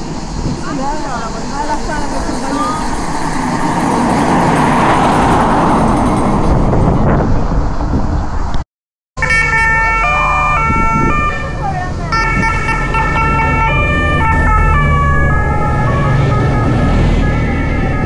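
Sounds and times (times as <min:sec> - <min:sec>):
low engine rumble: 0:00.0 - 0:08.6
road noise: 0:00.0 - 0:08.6, 0:09.2 - 0:18.0
two-tone sirens: 0:09.2 - 0:18.0.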